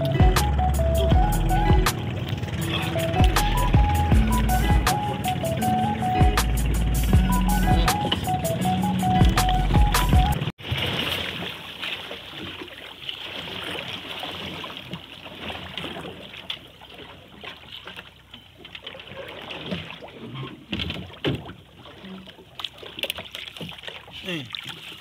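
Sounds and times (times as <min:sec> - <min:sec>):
water lapping against boat hull: 0:00.0 - 0:25.0.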